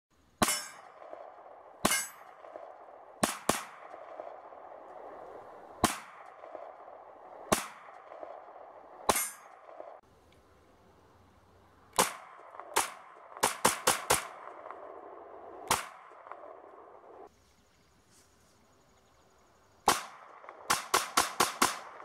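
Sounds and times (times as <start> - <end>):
pistol shots: 3.2 - 4.3, 5.8 - 6.8, 7.5 - 8.4, 11.9 - 14.7, 15.7 - 16.4, 19.8 - 22.0.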